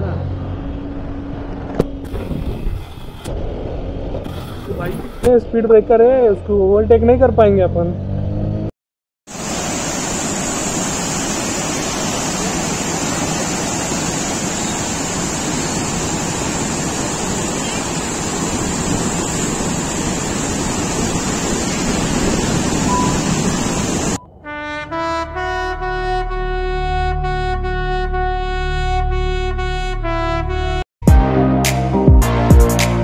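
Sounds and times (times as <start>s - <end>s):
water rushing over a weir: 9.3s - 24.2s
brass music: 24.2s - 33.0s.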